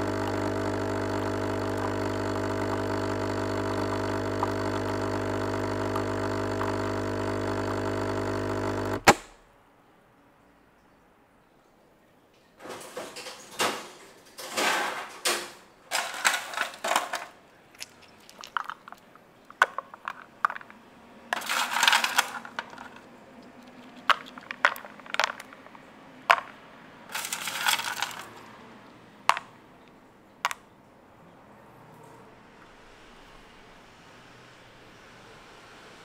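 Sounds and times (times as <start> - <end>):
ice clinking into steel tumbler: 15.9 - 20.8, 21.4 - 26.5, 27.1 - 28.4
ice cubes rattling in plastic container: 15.9 - 28.5.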